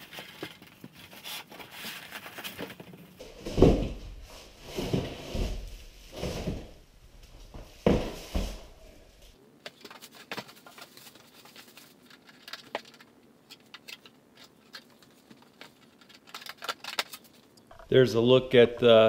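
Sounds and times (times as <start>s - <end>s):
plastic wrap crinkling: 9.7s - 17.6s.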